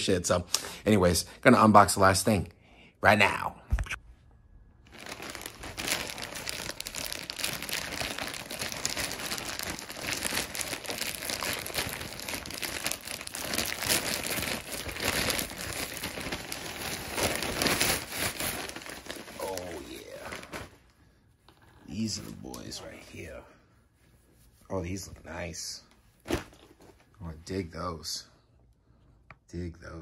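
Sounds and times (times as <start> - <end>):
plastic mailer bag crinkling: 4.9 - 20.8.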